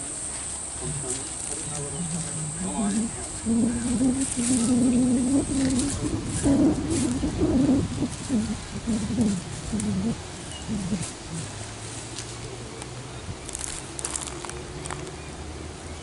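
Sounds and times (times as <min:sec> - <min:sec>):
dove cooing: 0:00.6 - 0:11.7.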